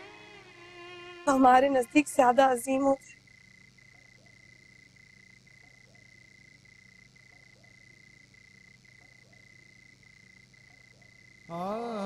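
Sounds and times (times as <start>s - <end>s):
frogs trilling: 0.0s - 12.0s
low frog croaks: 3.1s - 12.0s.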